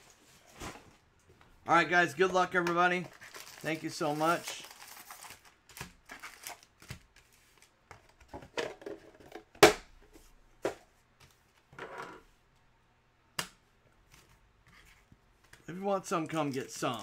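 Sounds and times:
pack wrappers rustling: 0:02.9 - 0:06.9.

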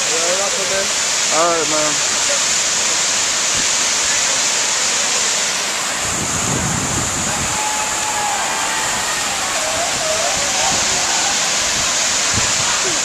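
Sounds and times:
waterfall rushing: 0:00.0 - 0:13.0
wind rumble on microphone: 0:06.0 - 0:08.0, 0:08.9 - 0:13.0.

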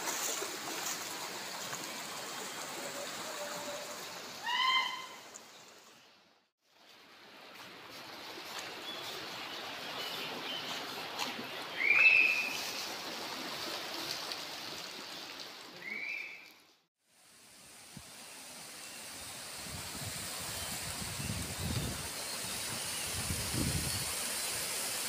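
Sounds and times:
water trickling into stream: 0:00.0 - 0:25.0
bird call: 0:04.4 - 0:05.2.

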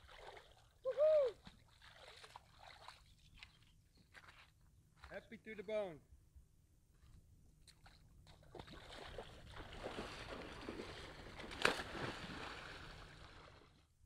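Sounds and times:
water sloshing around canoe: 0:00.0 - 0:00.8, 0:01.4 - 0:04.5, 0:07.7 - 0:13.8.

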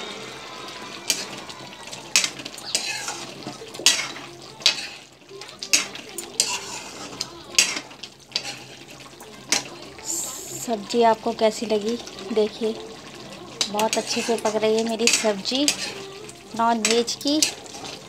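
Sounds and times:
wet stirring of liquid: 0:00.7 - 0:18.0
metal spatula clanking on pan: 0:02.1 - 0:05.0, 0:05.6 - 0:07.0, 0:07.6 - 0:08.8, 0:13.6 - 0:17.7.

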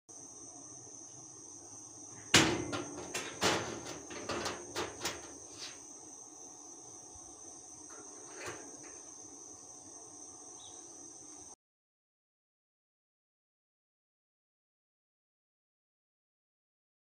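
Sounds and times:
chain clanking against metal door: 0:02.4 - 0:05.4.

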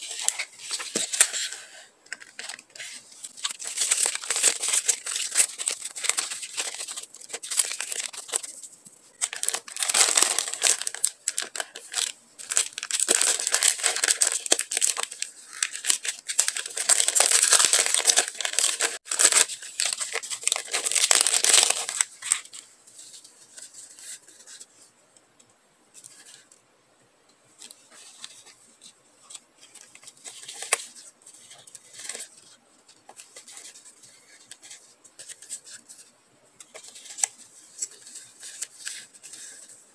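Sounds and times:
stickers rustling: 0:00.0 - 0:22.5
plastic packaging crinkling: 0:00.0 - 0:22.6.

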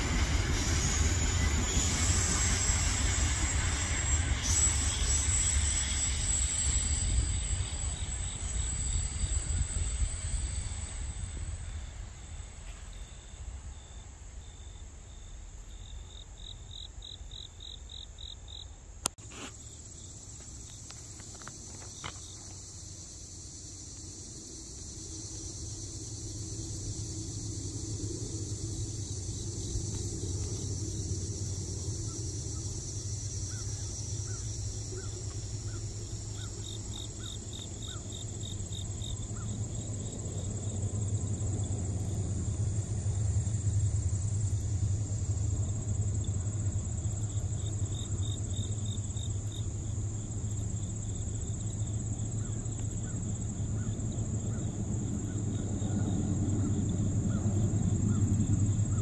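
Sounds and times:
crickets chirping: 0:00.0 - 0:59.0
steady low rumble: 0:24.2 - 0:59.0.

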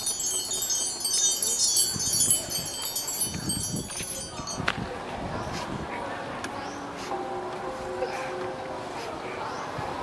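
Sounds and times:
wind chimes tinkling: 0:00.0 - 0:05.1.

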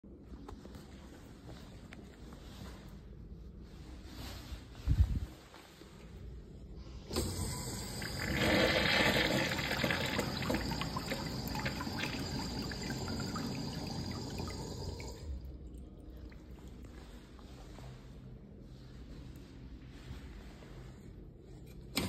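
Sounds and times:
urinal flushing: 0:07.1 - 0:17.2.

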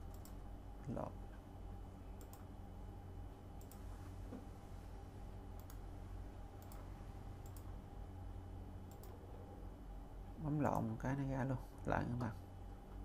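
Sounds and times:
computer mouse clicking: 0:00.0 - 0:00.4, 0:02.2 - 0:02.5, 0:03.6 - 0:03.8, 0:05.5 - 0:05.8, 0:06.6 - 0:07.7, 0:08.9 - 0:09.2
steady low hum: 0:00.0 - 0:13.0.

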